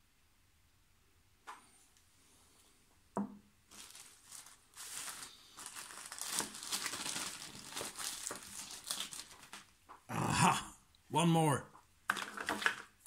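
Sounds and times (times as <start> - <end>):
plastic packaging crinkling: 3.7 - 9.9, 12.1 - 13.0.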